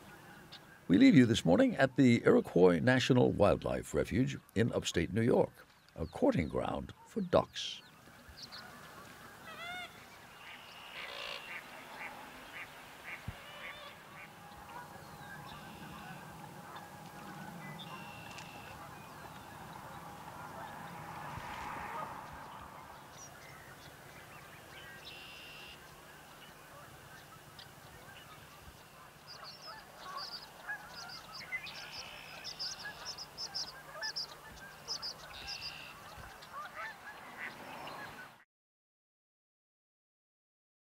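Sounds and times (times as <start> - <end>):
short high bird calls: 7.8 - 23.9, 24.8 - 25.8, 27.2 - 37.0
waterfowl honking: 8.4 - 38.4.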